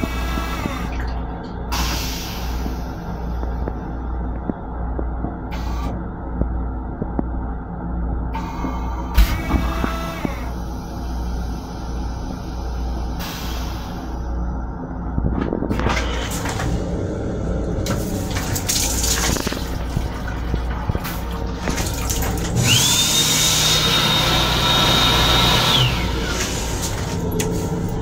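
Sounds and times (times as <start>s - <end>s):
low rumble: 0.0s - 23.2s, 25.7s - 28.0s
motor whining: 22.6s - 26.9s.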